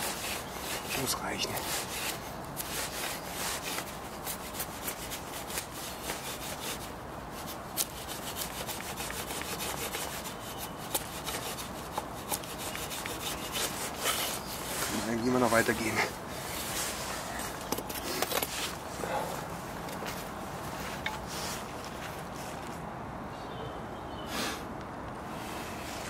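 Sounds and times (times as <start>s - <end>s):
machete scraping wood: 0.0s - 19.5s.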